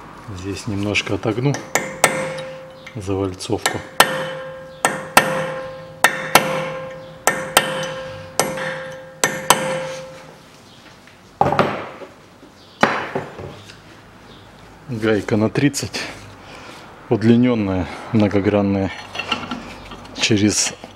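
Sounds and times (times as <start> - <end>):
hammer strikes on metal: 1.5 - 3.0, 3.6 - 10.3.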